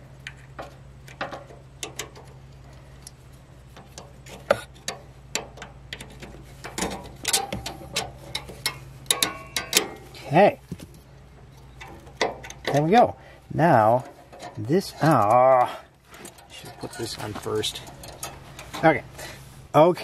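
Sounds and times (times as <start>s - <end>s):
steady low hum: 0.0s - 20.0s
small metal parts clinking: 3.9s - 10.3s, 14.0s - 19.0s.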